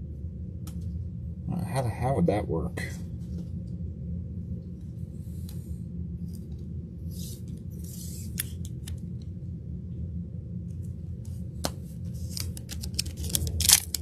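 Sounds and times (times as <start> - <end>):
steady low hum: 0.0 - 14.0
cards sliding swishes: 7.1 - 9.0.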